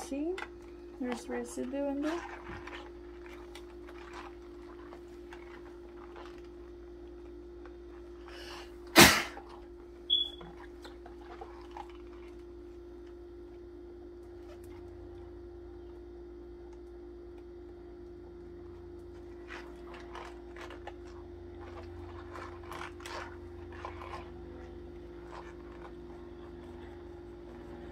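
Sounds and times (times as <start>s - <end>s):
steady hum: 0.0s - 27.9s
brush scrubbing plastic tubing: 0.1s - 12.8s, 18.8s - 27.9s
brief high squeak: 10.1s - 10.4s.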